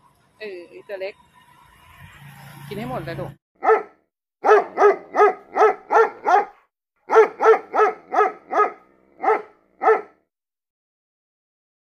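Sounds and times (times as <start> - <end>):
dog barking: 3.6 - 10.2.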